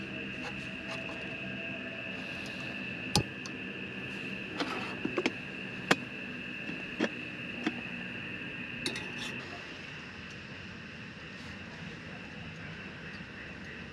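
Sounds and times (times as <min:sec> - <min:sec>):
night insects chirring: 0:00.0 - 0:13.9
camp stove igniter clicks: 0:02.4 - 0:03.6
metal kettle clinking on metal: 0:08.9 - 0:09.3.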